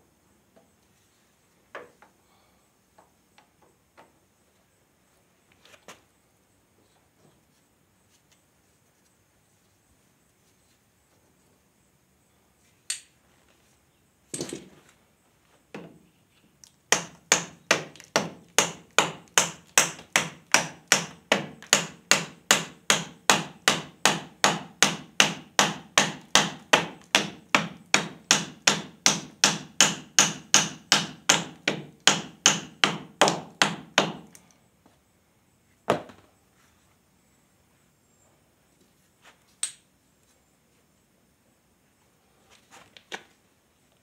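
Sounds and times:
hand hammer striking: 16.9 - 34.3.

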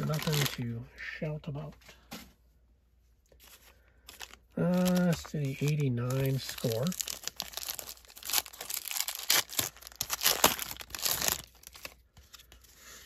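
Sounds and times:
wrapper tearing and crinkling: 0.0 - 0.6, 4.1 - 12.0.

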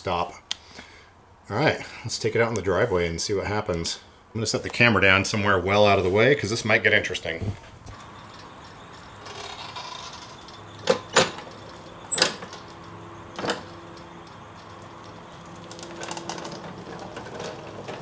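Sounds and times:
electric motor whine: 7.9 - 18.0.

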